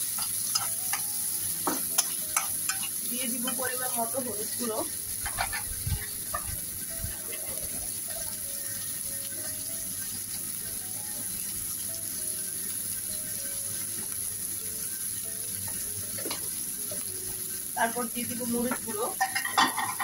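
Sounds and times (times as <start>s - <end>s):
onions sizzling in hot oil: 0.0s - 20.0s
soft background melody: 0.0s - 20.0s
utensil knocking on pan: 0.2s - 2.9s, 18.6s - 20.0s.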